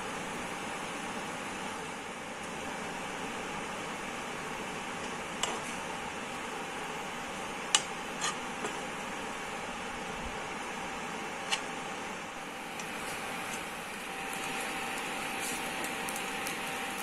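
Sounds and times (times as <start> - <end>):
steady hiss: 12.4 - 17.0.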